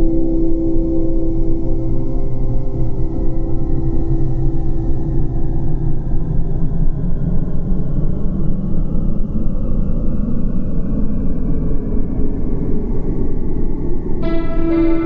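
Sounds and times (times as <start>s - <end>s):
deep rumbling ambient drone: 0.0s - 15.0s
faint sliding high tones: 14.2s - 15.0s.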